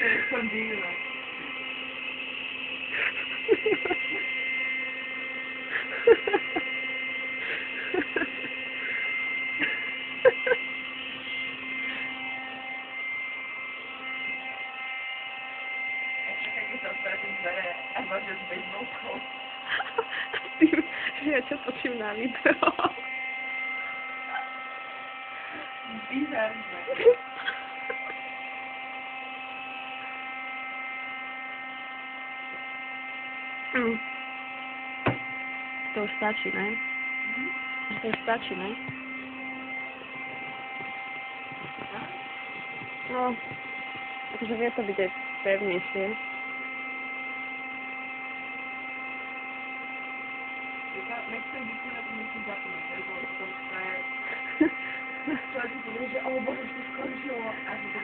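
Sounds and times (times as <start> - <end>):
electric air pump humming: 0.0 - 58.0.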